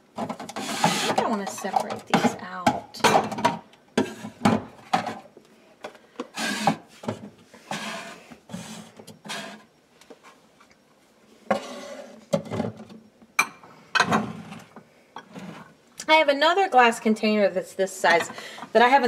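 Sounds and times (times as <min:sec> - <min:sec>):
plastic containers scraping: 0:00.2 - 0:05.3, 0:06.2 - 0:09.7, 0:11.5 - 0:12.9.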